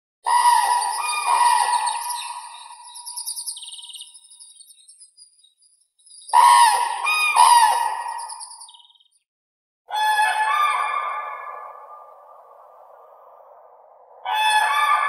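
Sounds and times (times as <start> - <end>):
cranes trumpeting: 0.3 - 3.1, 6.3 - 8.1.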